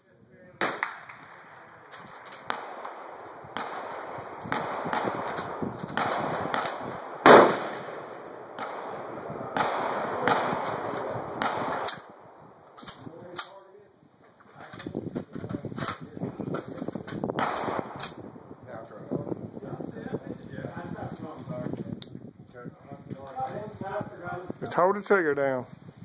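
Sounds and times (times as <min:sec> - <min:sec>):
suppressed rifle shots: 0:00.6 - 0:13.4, 0:17.4 - 0:18.3
loud rifle crack: 0:00.6 - 0:13.6, 0:17.4 - 0:18.4.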